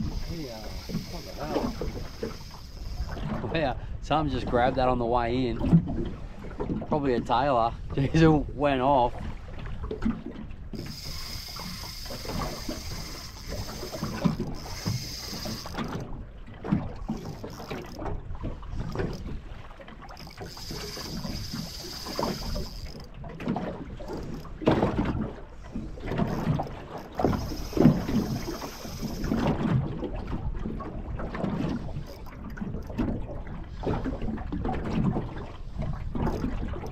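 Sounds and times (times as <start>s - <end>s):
fishing reel winding: 0.0s - 3.6s, 10.7s - 16.2s, 17.0s - 19.4s, 20.0s - 23.2s, 24.0s - 24.6s, 26.1s - 29.7s, 31.8s - 33.0s, 36.2s - 36.9s
water slapping boat hull: 0.0s - 36.9s.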